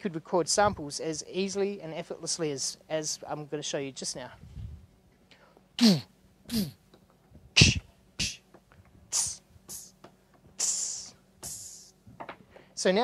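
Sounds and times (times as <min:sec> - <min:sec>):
man beatboxing: 0:05.8 - 0:06.8, 0:07.6 - 0:08.5, 0:09.1 - 0:10.0, 0:10.6 - 0:11.9.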